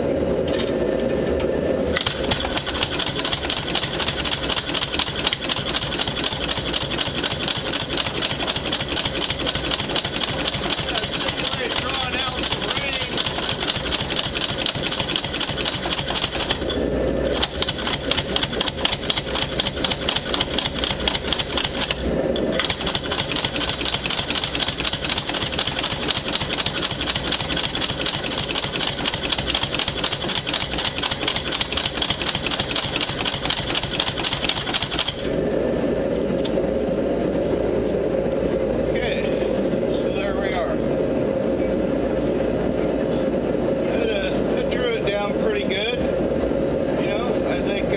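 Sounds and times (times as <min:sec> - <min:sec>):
power hammer striking steel: 0:01.9 - 0:35.3.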